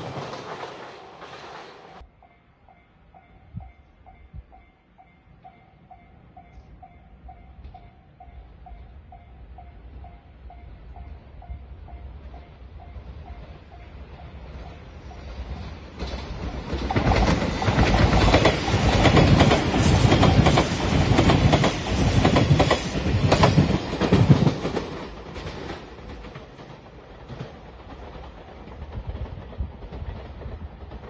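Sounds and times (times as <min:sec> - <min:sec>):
train wheels clattering over rail joints: 0:00.0 - 0:02.0, 0:16.0 - 0:31.0.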